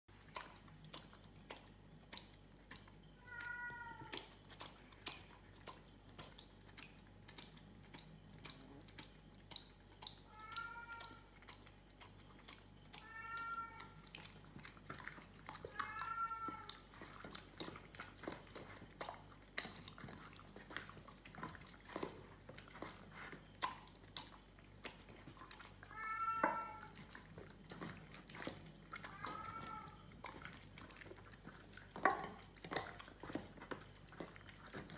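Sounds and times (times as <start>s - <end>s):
dog eating from metal bowl: 0.1s - 34.9s.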